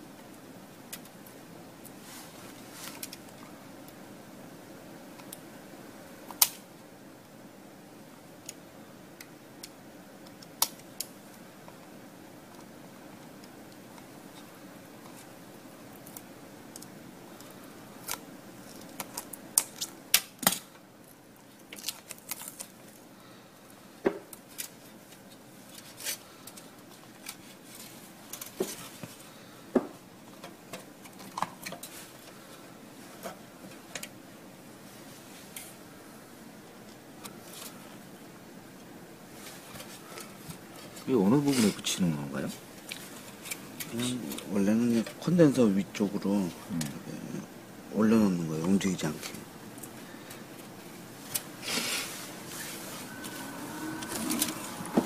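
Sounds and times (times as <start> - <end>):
sharp clicks and snips: 9.2 - 11.1.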